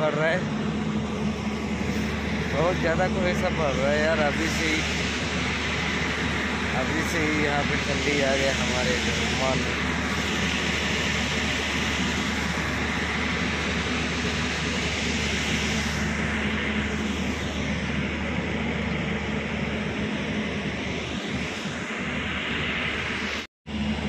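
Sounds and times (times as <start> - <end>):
machine drone with low hum: 0.0 - 24.0.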